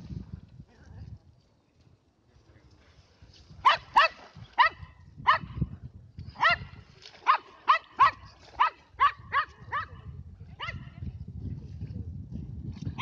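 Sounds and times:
dog barking: 3.6 - 5.6, 6.4 - 10.0, 10.6 - 10.8.

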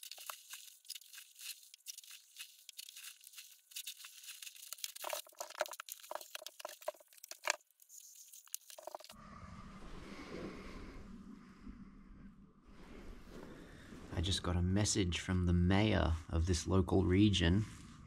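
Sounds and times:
plastic sheet crinkling: 0.0 - 9.2
low hum: 9.1 - 13.8.

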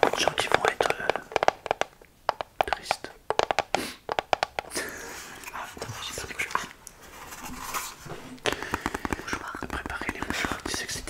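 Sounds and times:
soft clicks or taps: 0.0 - 4.7.

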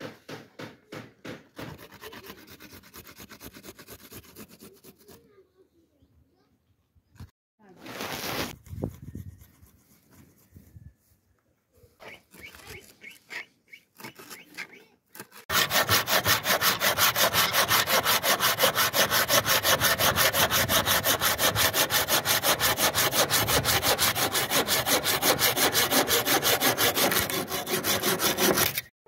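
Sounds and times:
hand saw cutting wood: 0.6 - 5.4, 12.0 - 28.9.

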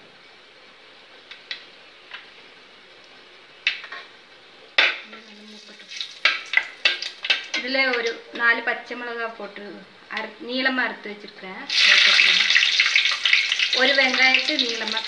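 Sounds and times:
spices frying in oil: 3.0 - 8.4, 11.2 - 15.0.

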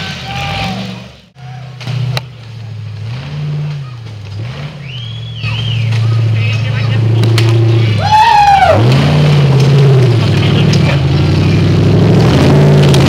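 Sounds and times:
buggy engine revving: 0.0 - 13.0
short high whistle: 4.8 - 5.9.

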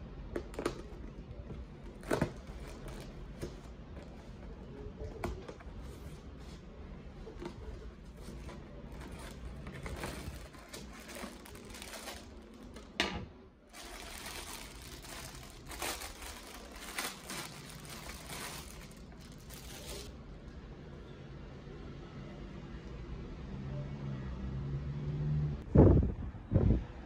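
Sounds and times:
cardboard and tape rustling: 0.3 - 13.0, 13.7 - 20.1
plastic bag crinkling: 8.2 - 13.0, 13.7 - 20.1.

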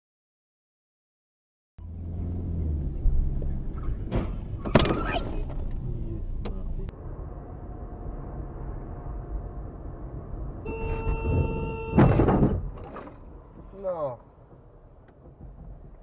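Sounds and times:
car engine and road rumble: 1.8 - 16.0.

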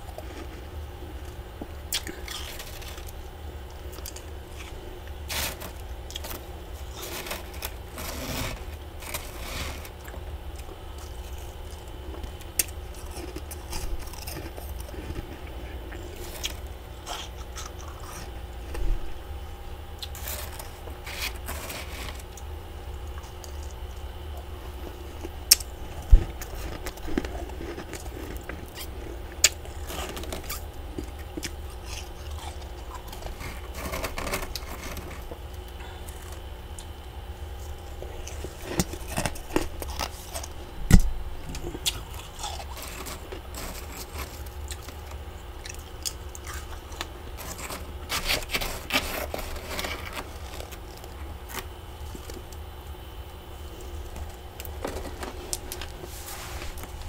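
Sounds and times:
fingernails scraping frost: 5.3 - 10.0, 20.2 - 22.2, 33.2 - 35.2, 42.6 - 44.4, 47.4 - 50.8, 54.8 - 57.0.

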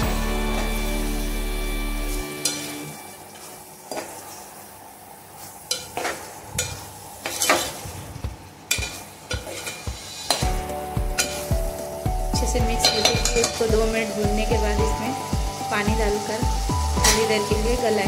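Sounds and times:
background music: 0.0 - 3.2, 9.9 - 18.0
food sizzling in a pan: 0.0 - 18.0
metal spatula scraping a pan: 5.7 - 7.9, 8.7 - 10.5.

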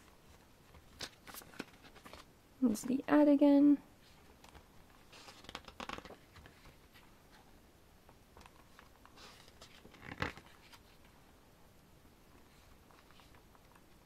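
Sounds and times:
book pages turning: 0.3 - 2.3, 4.0 - 7.4, 8.4 - 11.2, 12.4 - 14.0.

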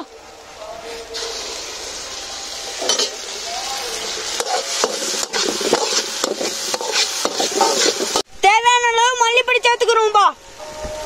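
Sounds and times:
onions sizzling in oil: 0.0 - 8.3
spoon scraping and knocking pan: 2.8 - 3.2, 4.2 - 8.2.

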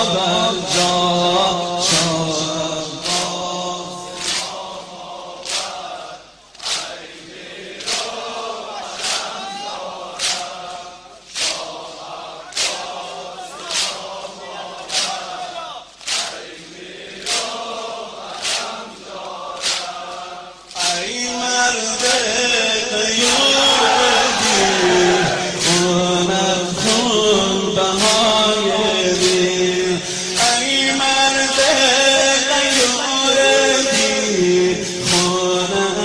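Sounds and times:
man chanting: 0.0 - 4.7, 20.8 - 36.0
chorus of voices chanting: 0.0 - 36.0
hand slaps on chest: 12.6 - 12.9, 13.7 - 14.0, 14.9 - 15.2, 19.6 - 20.0.

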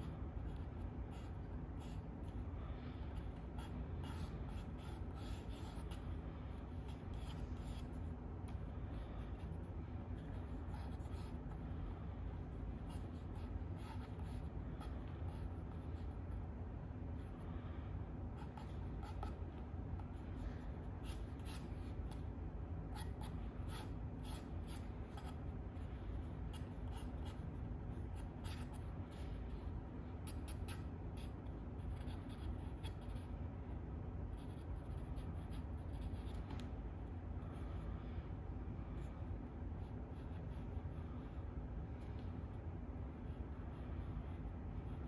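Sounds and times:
low room hum: 0.0 - 45.0
drawing tool scratching on paper: 3.0 - 16.2, 18.3 - 33.3.

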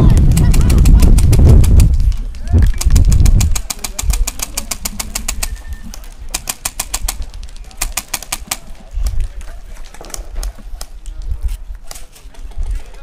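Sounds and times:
wind buffeting microphone: 0.0 - 13.0
airsoft guns firing: 2.7 - 5.6, 6.2 - 8.8.

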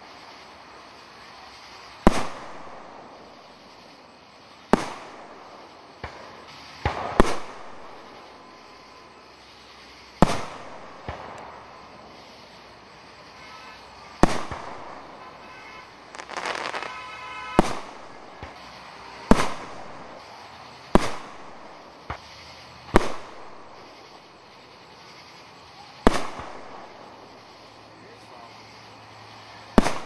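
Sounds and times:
small firework pops: 1.6 - 3.6, 4.6 - 8.3, 10.1 - 12.2, 13.4 - 24.2, 25.8 - 27.3, 29.7 - 30.0
fireworks bangs with echo: 1.9 - 3.6, 4.6 - 8.8, 10.2 - 12.5, 13.2 - 22.3, 22.9 - 23.9, 26.0 - 27.4, 29.7 - 30.0.

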